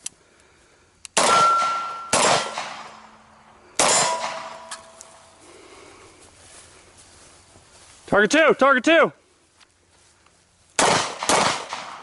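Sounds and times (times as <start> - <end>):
pistol shots: 1.2 - 3.2, 3.8 - 5.0, 10.8 - 12.0
metallic ringing clang: 1.2 - 5.3.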